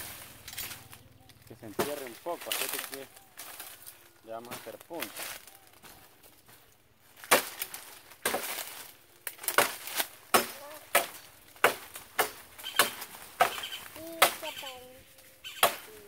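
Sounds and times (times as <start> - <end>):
machete chopping wood: 1.8 - 2.8, 7.2 - 14.5, 15.5 - 16.0.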